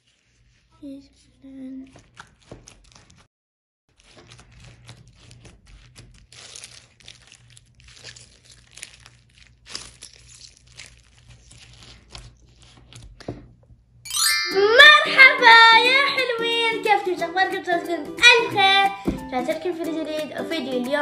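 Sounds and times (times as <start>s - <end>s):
slime crackling and crunching: 3.9s - 12.8s.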